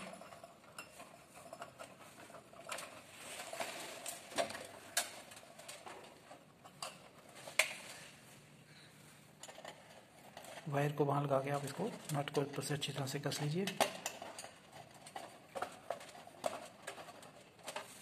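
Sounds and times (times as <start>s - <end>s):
small metal parts clicking: 13.2s - 17.9s.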